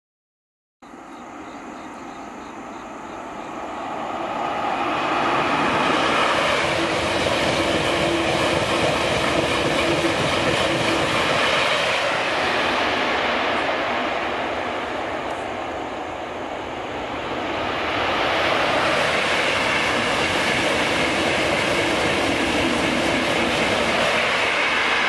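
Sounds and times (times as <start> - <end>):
high-speed train passing: 0.8 - 25.0.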